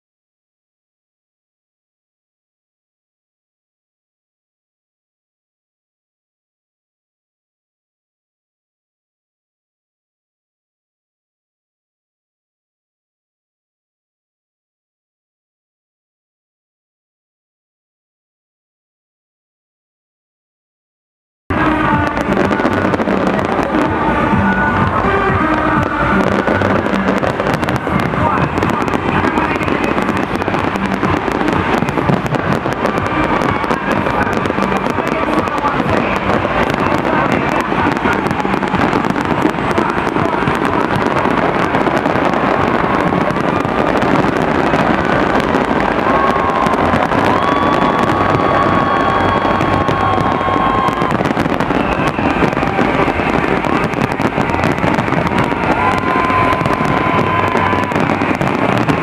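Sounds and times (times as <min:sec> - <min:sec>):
fireworks bangs and crackling: 0:21.5 - 0:59.0.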